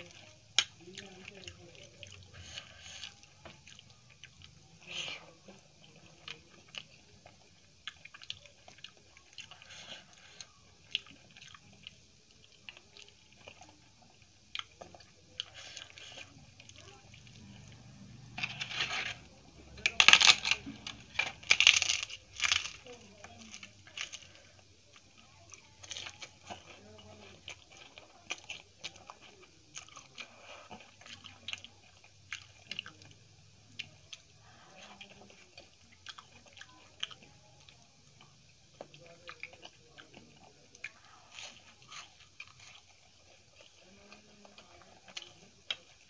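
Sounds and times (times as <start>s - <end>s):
crisp papad crunching: 18.2s - 33.0s.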